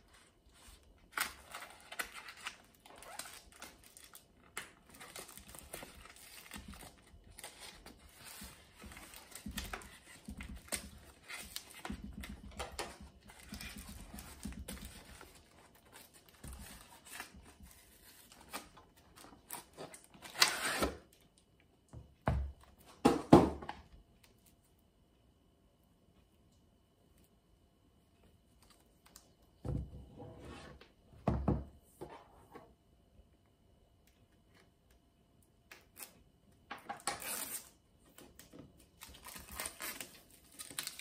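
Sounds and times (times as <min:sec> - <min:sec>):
packing tape slit and torn: 0:01.1 - 0:08.4, 0:19.4 - 0:21.0, 0:35.7 - 0:36.2, 0:36.9 - 0:37.8, 0:39.0 - 0:41.0
packaging crinkling: 0:38.9 - 0:41.0.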